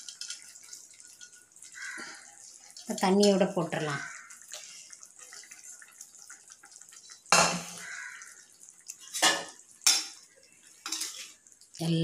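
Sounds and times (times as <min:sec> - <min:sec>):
curry bubbling in a pot: 0:00.0 - 0:12.0
kitchen utensil clanking: 0:09.1 - 0:10.2.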